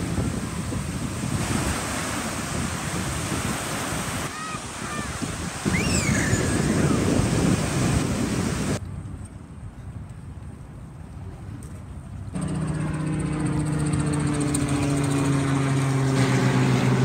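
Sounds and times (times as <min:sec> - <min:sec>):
surf breaking on beach: 0:00.0 - 0:08.8
wind buffeting microphone: 0:00.0 - 0:17.0
long sweeping call: 0:04.2 - 0:07.1.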